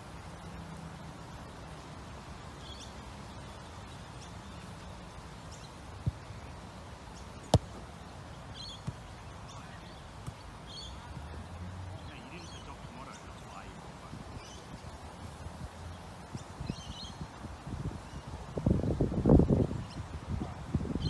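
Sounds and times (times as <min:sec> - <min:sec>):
birds chirping: 0:02.5 - 0:17.3
football kicked thud: 0:07.5 - 0:07.9, 0:08.6 - 0:09.1, 0:10.2 - 0:10.4.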